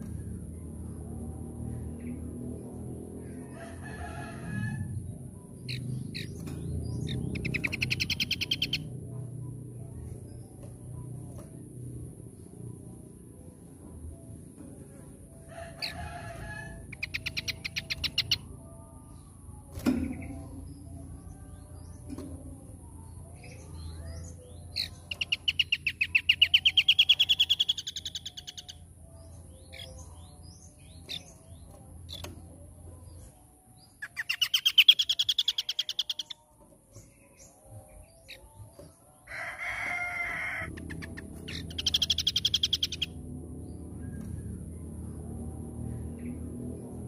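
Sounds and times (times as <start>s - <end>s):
bird singing high trills: 5.7s - 8.9s, 23.4s - 28.8s, 33.9s - 36.5s, 40.7s - 43.2s.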